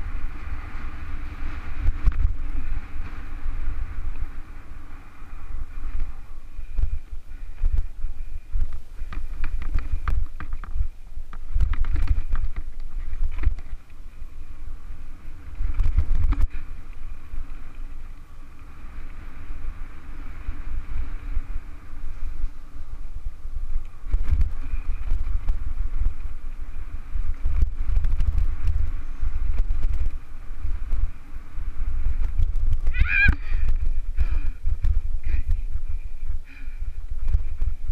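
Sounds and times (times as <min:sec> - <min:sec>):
bike frame rattling: 0:00.0 - 0:22.0
wind buffeting microphone: 0:00.0 - 0:37.9.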